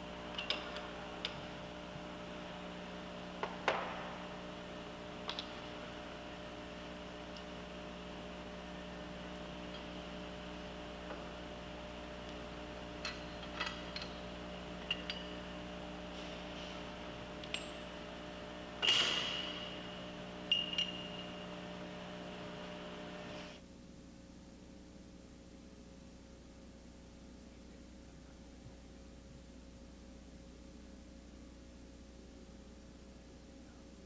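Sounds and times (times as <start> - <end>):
electrical hum: 0.0 - 34.0
metal tools clinking: 0.3 - 1.1, 13.0 - 18.0, 20.5 - 21.4.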